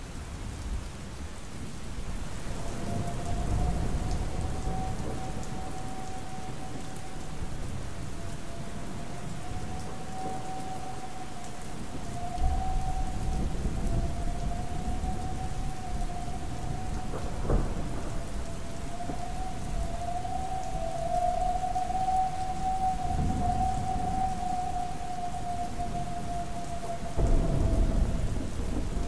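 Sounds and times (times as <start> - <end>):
steady rain: 0.0 - 29.0
rolling thunder: 2.4 - 29.0
sharp thunderclap: 17.0 - 18.3, 27.2 - 29.0.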